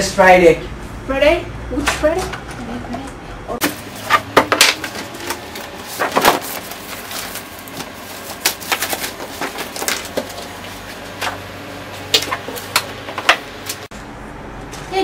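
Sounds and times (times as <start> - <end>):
papers rustling: 3.6 - 13.9.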